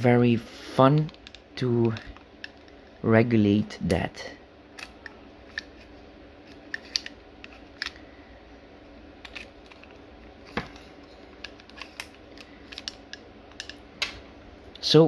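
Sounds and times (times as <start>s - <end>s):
small clicks and knocks of gun parts: 1.0s - 2.9s, 6.5s - 8.0s, 9.2s - 14.2s.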